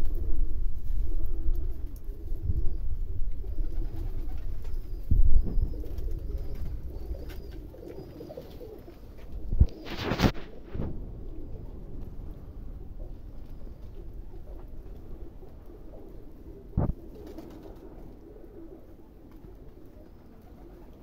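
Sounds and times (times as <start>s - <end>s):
pigeons cooing: 0.0s - 21.0s
low rumble: 9.3s - 17.0s
dull thumps: 16.8s - 17.0s.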